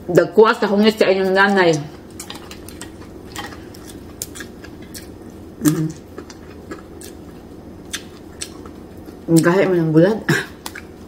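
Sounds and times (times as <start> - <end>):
chewing: 1.7 - 9.6, 10.5 - 11.0.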